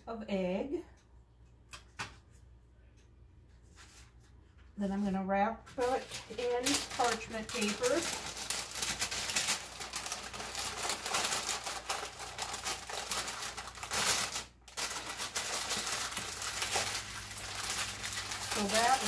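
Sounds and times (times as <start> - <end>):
paper crinkling and rustling: 5.7 - 19.0.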